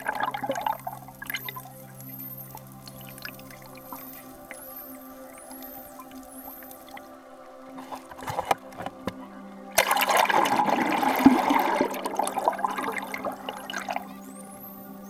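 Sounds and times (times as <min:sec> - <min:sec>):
underwater rush of water: 0:00.0 - 0:02.0, 0:09.7 - 0:14.1
water splashing: 0:00.0 - 0:14.1.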